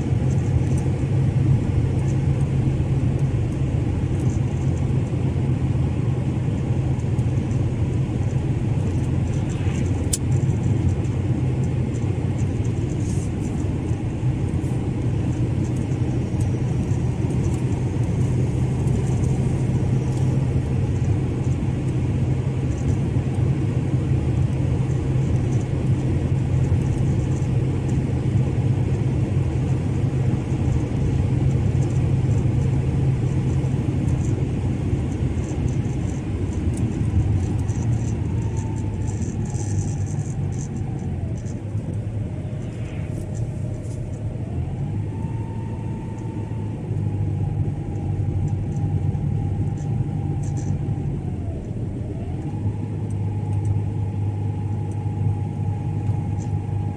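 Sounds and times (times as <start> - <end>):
car engine and tyres rumbling: 0.0 - 56.9
faint whine: 0.0 - 56.9.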